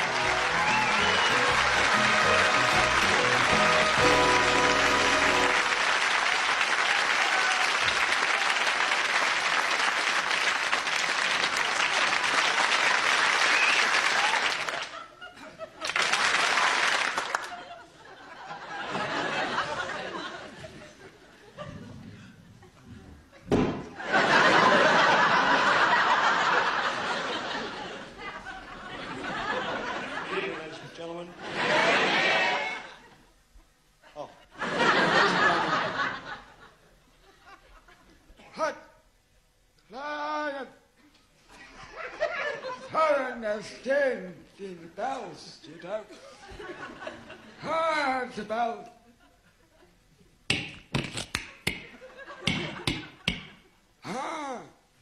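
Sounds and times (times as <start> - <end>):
walk-on music: 0.0 - 6.0
audience applauding: 0.0 - 15.0, 15.8 - 17.8
studio audience laughing: 17.2 - 21.8, 23.9 - 33.3, 34.1 - 38.2, 41.5 - 42.9, 46.1 - 47.6, 51.8 - 53.3.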